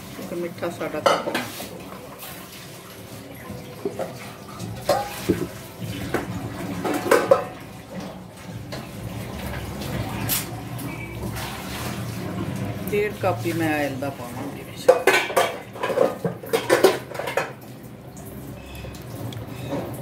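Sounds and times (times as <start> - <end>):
metal kitchenware clinking: 3.9 - 5.5, 6.2 - 7.6, 14.8 - 17.6.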